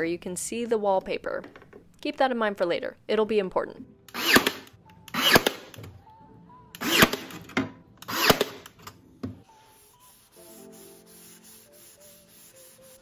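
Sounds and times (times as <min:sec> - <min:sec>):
background music: 0:03.1 - 0:13.0.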